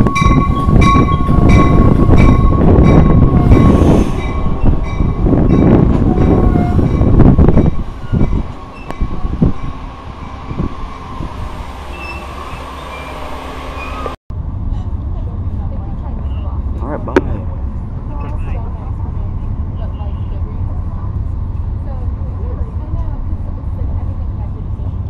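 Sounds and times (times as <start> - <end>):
train low rumble: 0.0 - 25.0
brake squeal: 11.9 - 14.2.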